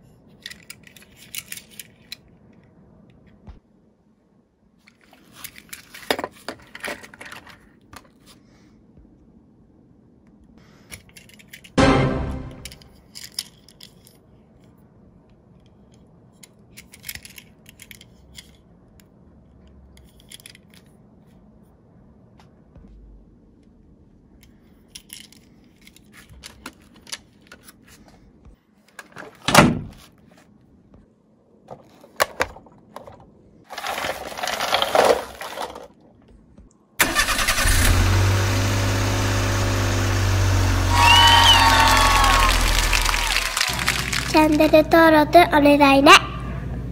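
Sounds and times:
toy cars clicking and clacking: 0:00.4 - 0:02.2, 0:12.6 - 0:14.2, 0:16.4 - 0:18.6, 0:20.0 - 0:20.9, 0:33.7 - 0:36.0, 0:40.9 - 0:45.0
truck engine running: 0:37.7 - 0:41.2.

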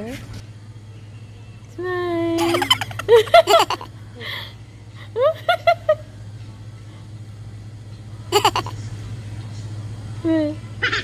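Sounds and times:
steady low hum: 0:00.4 - 0:11.0.

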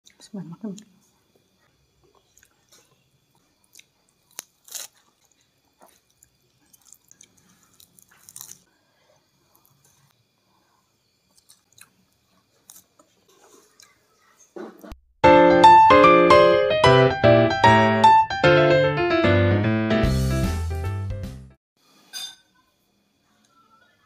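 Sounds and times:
person chewing food: 0:01.2 - 0:08.7, 0:11.3 - 0:14.0.

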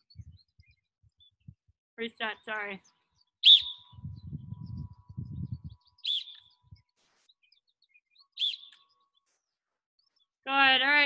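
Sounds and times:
faint birdsong: 0:00.0 - 0:11.0
whistle blasts: 0:03.4 - 0:03.8, 0:06.1 - 0:06.3.

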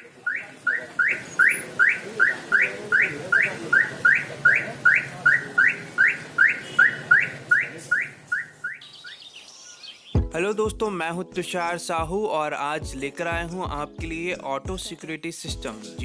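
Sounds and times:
car alarm chirps: 0:00.0 - 0:09.8.

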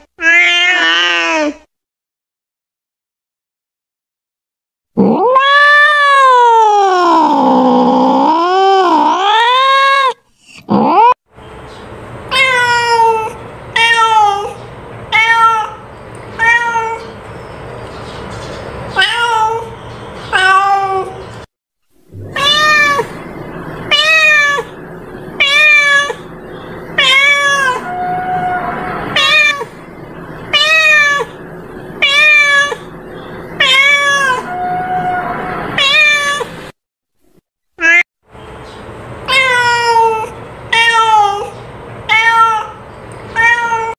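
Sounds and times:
cat meowing: 0:00.2 - 0:01.6, 0:05.0 - 0:11.1, 0:12.3 - 0:15.8, 0:16.4 - 0:17.2, 0:19.0 - 0:19.7, 0:20.3 - 0:21.2, 0:22.2 - 0:23.3, 0:23.9 - 0:24.8, 0:25.4 - 0:26.3, 0:27.0 - 0:29.8, 0:30.5 - 0:31.4, 0:32.0 - 0:32.9, 0:33.6 - 0:36.6, 0:37.8 - 0:38.0, 0:39.3 - 0:43.9.

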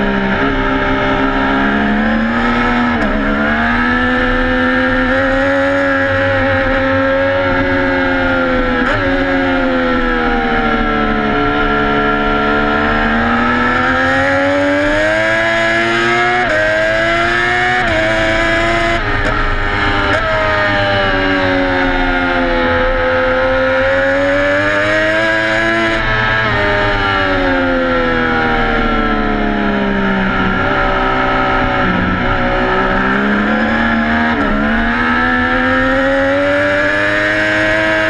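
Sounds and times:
motorcycle engine at high revs: 0:00.0 - 0:38.0.

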